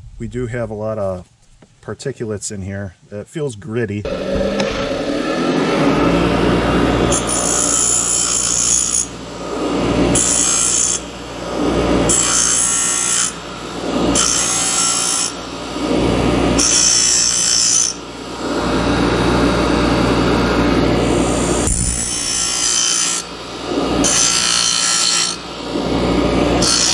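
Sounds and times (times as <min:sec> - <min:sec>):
grinder motor hum: 0:04.1 - 0:14.7, 0:15.3 - 0:26.9
metal grinding on grinder wheel: 0:04.1 - 0:26.9.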